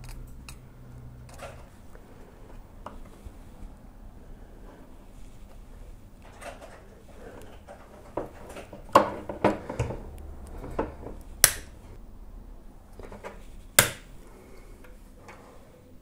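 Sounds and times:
plastic snapping: 8.2 - 11.8, 13.8 - 14.1.

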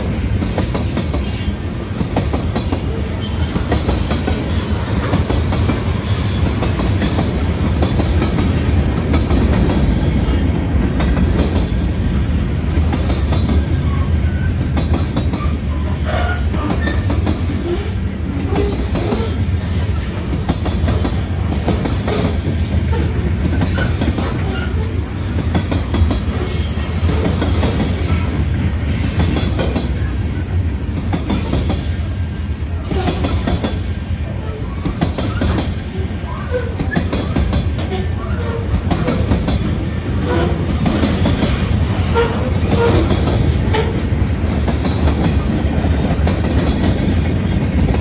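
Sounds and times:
freight train rolling past: 0.0 - 48.0
wheel squeals: 2.9 - 6.7.

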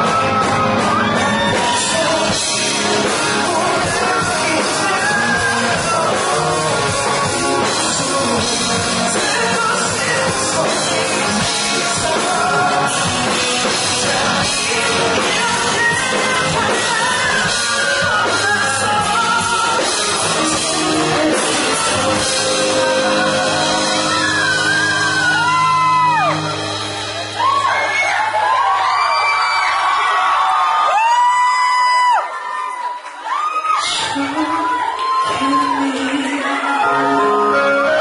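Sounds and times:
man singing: 0.0 - 26.5, 35.3 - 38.0
electric guitar: 0.0 - 29.2, 33.7 - 38.0
drums: 0.0 - 38.0.

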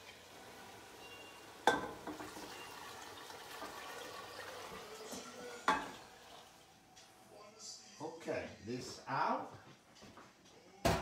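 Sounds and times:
liquid pouring into pot: 0.0 - 6.8.

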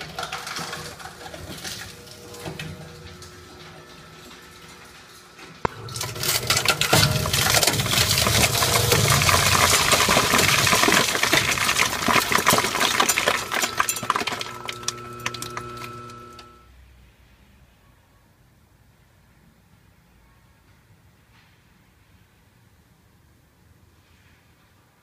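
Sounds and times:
shredder motor running: 0.0 - 4.8, 5.6 - 16.6
hard drive crunching and clinking: 0.0 - 16.6.

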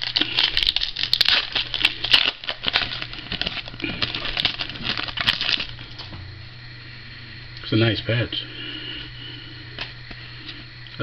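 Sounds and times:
plastic packaging crinkling: 0.0 - 6.2.

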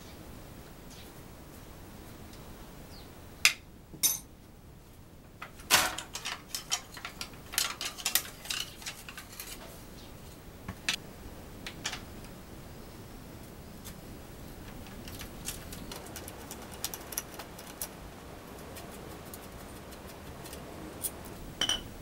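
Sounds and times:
hand tools clicking and clinking: 5.7 - 9.6.

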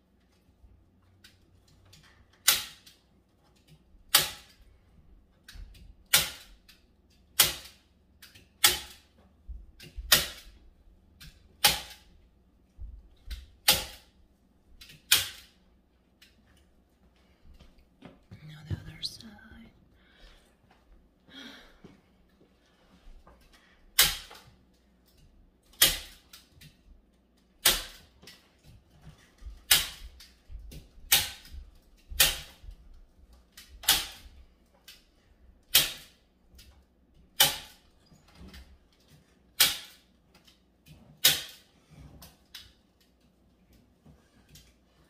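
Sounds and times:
staple gun snapping into wood: 4.1 - 4.6, 6.1 - 6.5, 24.0 - 24.4, 35.7 - 36.1.

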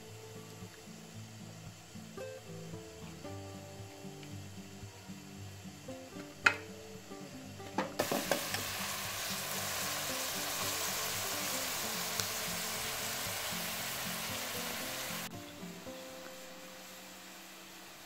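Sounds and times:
onions sizzling in oil: 0.0 - 18.0
soft background music: 0.0 - 18.0
wooden spoon knocking a pan: 6.4 - 6.7, 7.7 - 8.6.

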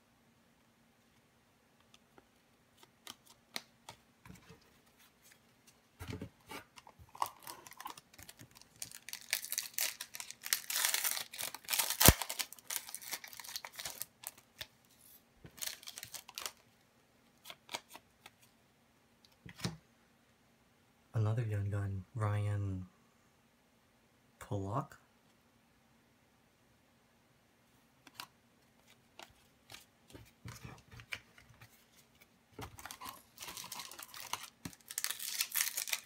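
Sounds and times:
foil wrapper crinkling: 7.1 - 14.7, 15.5 - 16.6, 32.7 - 36.0
sharp crack of wrapper: 7.2 - 14.7, 32.8 - 36.0.

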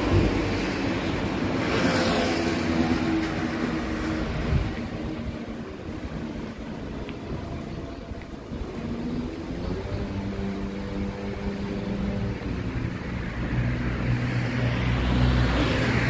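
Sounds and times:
motor vehicle passing: 8.6 - 16.0.

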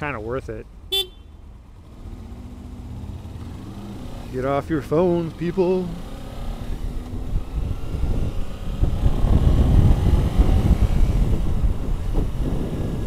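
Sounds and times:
motorcycle accelerating: 0.0 - 13.0
wind rumble on microphone: 6.7 - 13.0.

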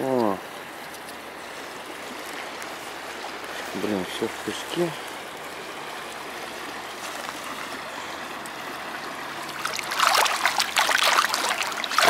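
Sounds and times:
running water: 0.0 - 12.0
hand splashing in shallow water: 9.5 - 12.0.

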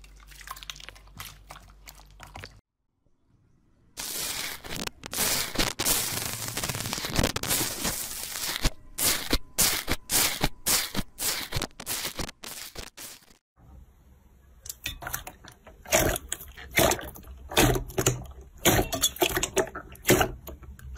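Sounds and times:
slime crackling: 4.0 - 13.1.

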